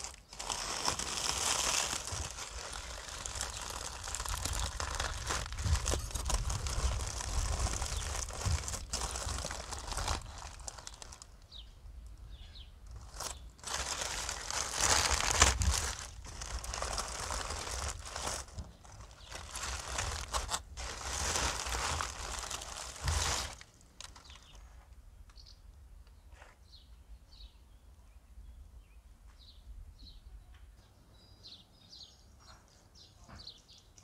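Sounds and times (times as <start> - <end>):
parchment and foil crinkling: 0.0 - 11.5, 12.8 - 24.8.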